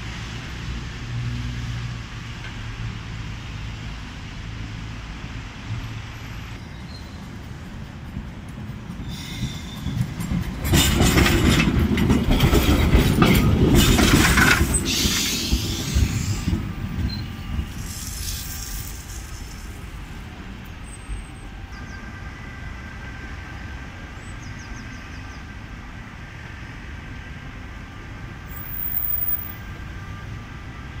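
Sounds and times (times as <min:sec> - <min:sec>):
street noise: 0:00.0 - 0:31.0
tram rumble and wheel clatter: 0:00.0 - 0:31.0
wheel squeal tones: 0:06.3 - 0:07.3, 0:09.0 - 0:11.2, 0:13.8 - 0:19.8.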